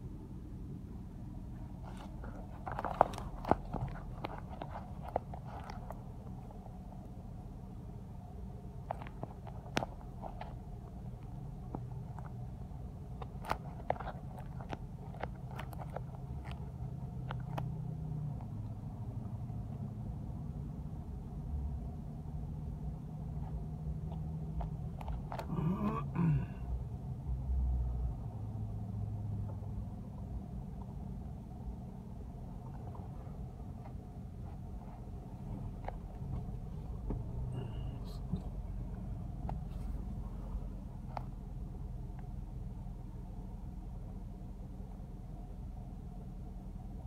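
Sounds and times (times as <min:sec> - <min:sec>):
car engine and tyres rumbling: 0:00.0 - 0:47.0.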